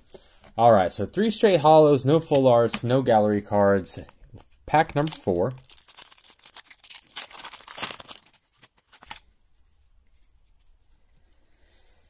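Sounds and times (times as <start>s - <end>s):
foil wrapper crinkling and tearing: 4.7s - 9.3s.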